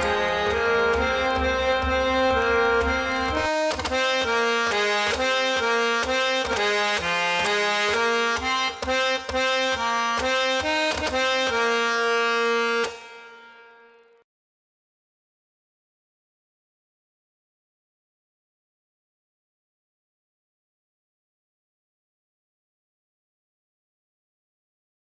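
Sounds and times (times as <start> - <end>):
harmonium melody with reedy drone: 0.0 - 14.2.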